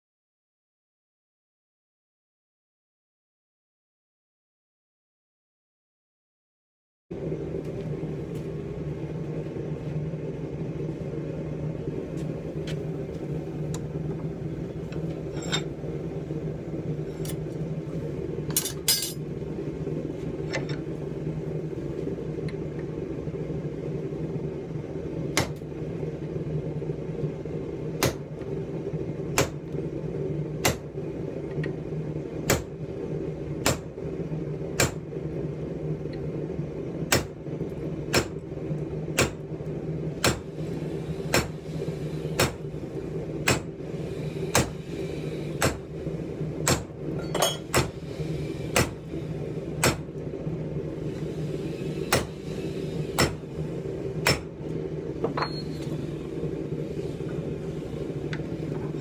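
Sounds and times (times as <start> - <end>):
steady low hum: 7.1 - 59.0
hammer striking steel punch: 43.5 - 43.7, 46.6 - 47.9, 49.8 - 50.1, 53.2 - 53.4, 54.2 - 54.5.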